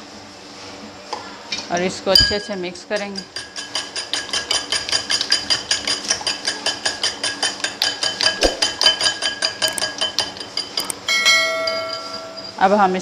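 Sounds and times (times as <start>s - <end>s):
fork whisking in glass bowl: 3.0s - 11.0s
short ringing chime: 11.0s - 12.6s.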